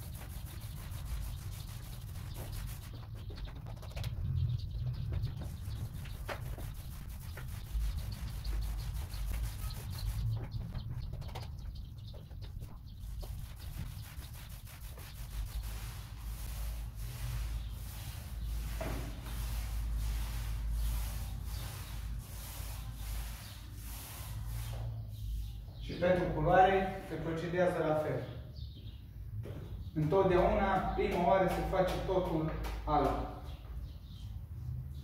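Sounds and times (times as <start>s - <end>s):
paint roller rubbing on wall: 0.0s - 25.5s.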